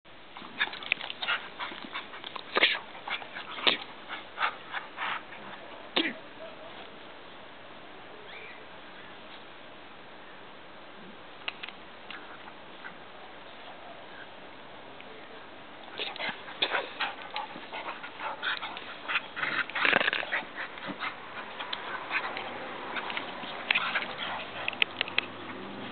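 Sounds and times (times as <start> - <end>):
dogs play-wrestling: 0.3 - 5.9, 15.8 - 25.9.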